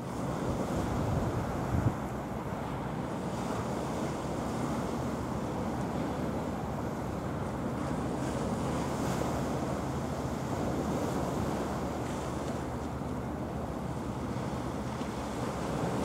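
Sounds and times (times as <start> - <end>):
choppy sea washing: 0.0 - 16.0
wind buffeting microphone: 0.2 - 2.4.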